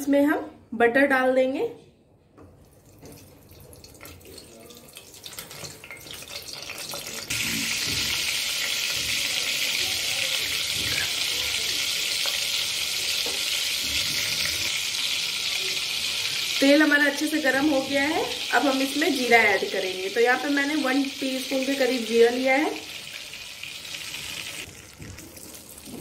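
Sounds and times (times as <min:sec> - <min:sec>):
butter sizzling in oil: 0:05.0 - 0:26.0.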